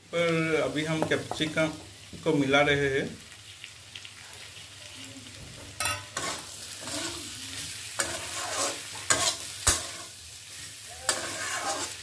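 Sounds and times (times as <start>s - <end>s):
food sizzling: 0.0s - 12.0s
spatula scraping metal pan: 5.8s - 12.0s.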